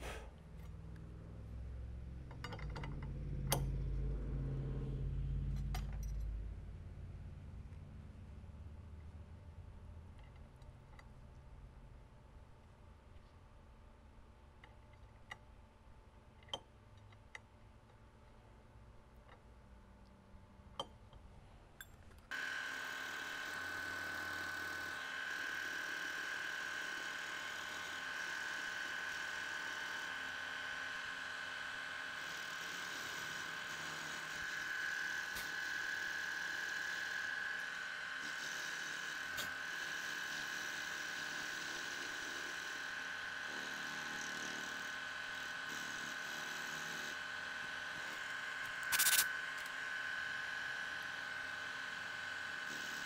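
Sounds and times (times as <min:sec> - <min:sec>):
milling machine cutting steel: 0:22.3 - 0:53.0
small metal parts clicking: 0:48.6 - 0:49.7.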